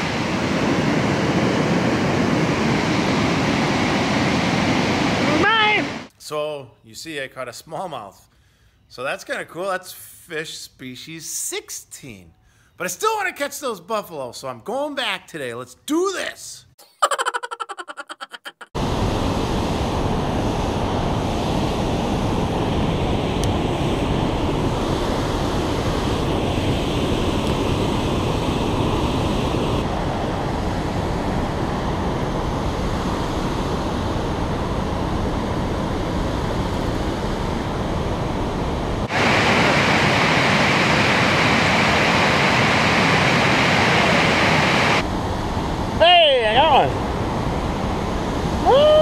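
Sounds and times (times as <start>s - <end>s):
river water rushing over rapids: 39.0s - 45.0s.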